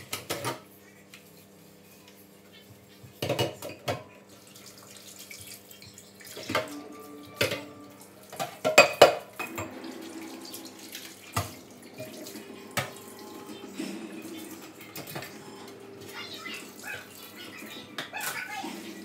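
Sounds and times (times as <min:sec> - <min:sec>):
dishes clinking against sink: 0:03.0 - 0:04.2, 0:06.2 - 0:17.0.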